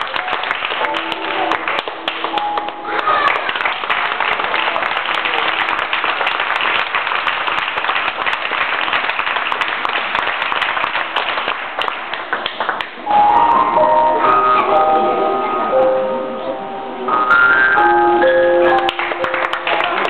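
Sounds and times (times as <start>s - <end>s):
audience applauding: 0.0s - 13.1s, 18.6s - 20.0s
music with held notes: 0.6s - 3.7s, 13.0s - 20.0s.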